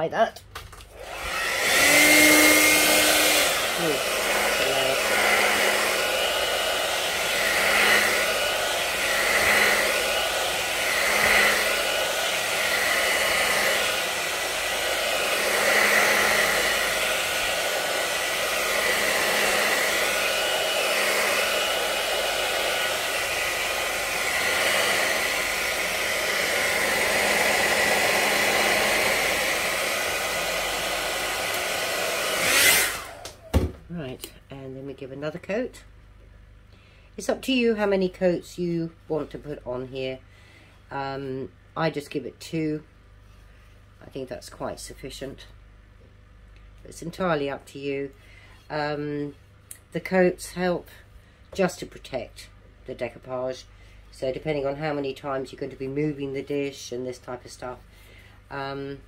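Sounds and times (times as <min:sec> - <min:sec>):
hair dryer blowing: 0:00.8 - 0:33.8, 0:52.4 - 0:59.0.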